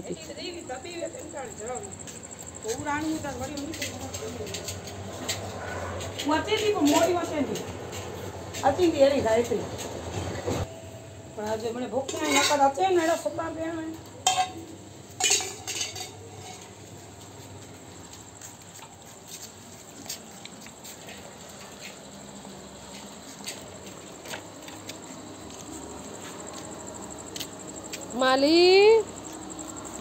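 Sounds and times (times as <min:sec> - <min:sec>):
steel plate clinking on concrete: 0:02.7 - 0:07.6, 0:12.0 - 0:13.2, 0:14.2 - 0:16.9.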